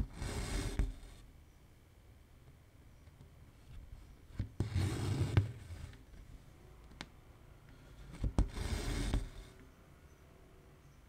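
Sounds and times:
thread rasping through fabric: 0:00.0 - 0:01.2, 0:07.9 - 0:09.6.

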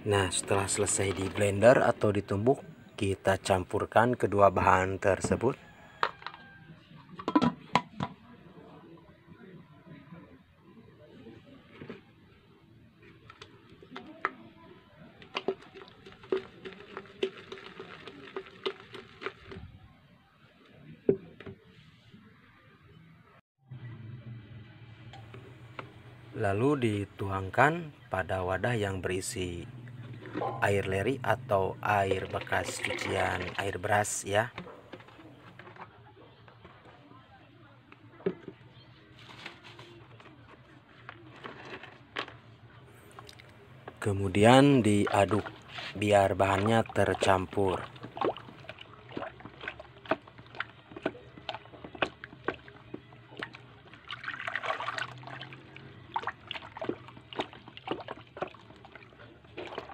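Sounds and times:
bucket knocks and clicks: 0:07.2 - 0:08.2, 0:15.2 - 0:19.6, 0:46.5 - 0:59.9.

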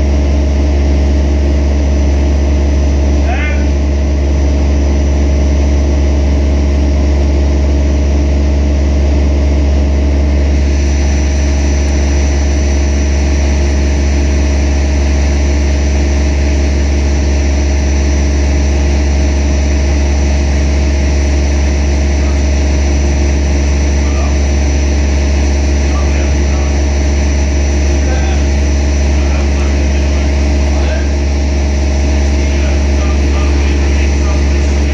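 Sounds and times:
heavy diesel engine droning: 0:00.0 - 0:34.9
faint high whine: 0:25.5 - 0:34.9.

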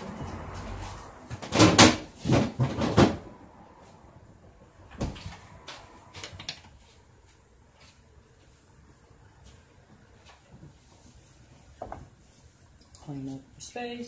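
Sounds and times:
kitchen knocks and bangs: 0:01.3 - 0:03.4.

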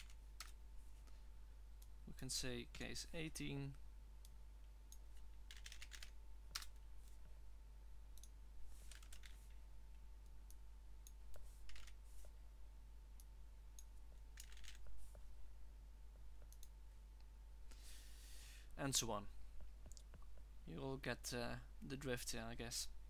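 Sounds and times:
keyboard typing and clicking: 0:00.0 - 0:00.6, 0:04.2 - 0:07.2, 0:08.2 - 0:09.5, 0:10.5 - 0:12.0, 0:13.2 - 0:14.9, 0:16.4 - 0:16.8
steady low hum: 0:00.0 - 0:23.0.

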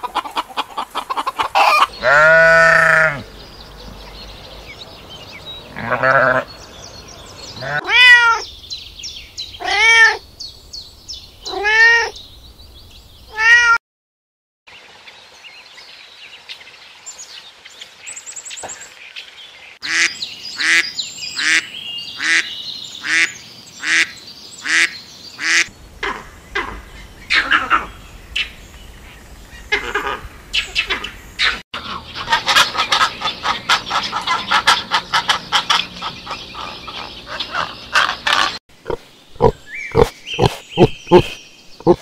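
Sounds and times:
animal cries rising and falling: 0:01.6 - 0:03.3, 0:07.6 - 0:08.5, 0:09.6 - 0:10.2, 0:11.5 - 0:12.1, 0:13.3 - 0:13.8.

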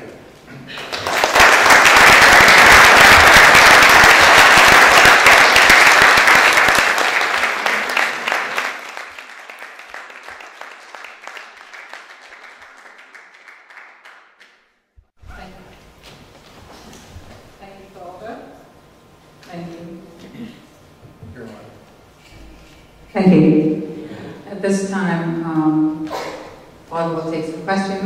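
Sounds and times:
audience applauding: 0:00.7 - 0:14.6.

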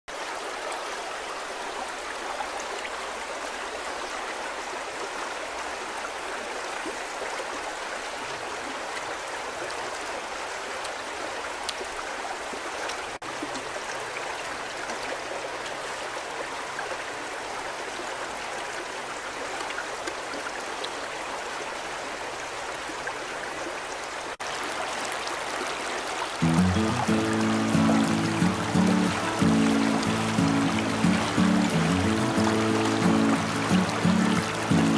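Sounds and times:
river flowing over rocks: 0:00.1 - 0:34.9
music: 0:26.4 - 0:34.9.

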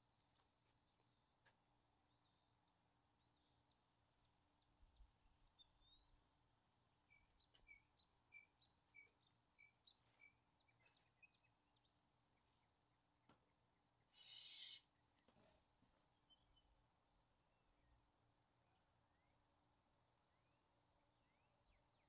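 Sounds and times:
faint bird chirps: 0:02.0 - 0:13.0, 0:14.1 - 0:16.8.

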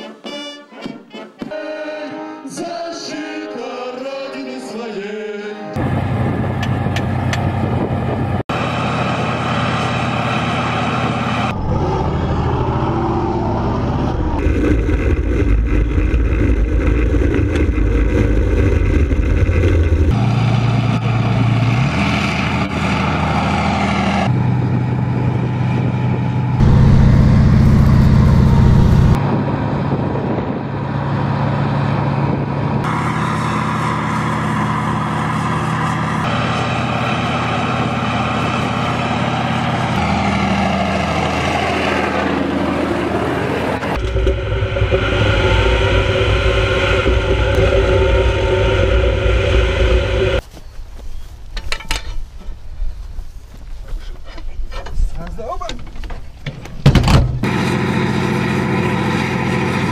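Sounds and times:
tank diesel engines running: 0:05.8 - 0:50.4, 0:57.3 - 0:59.9.

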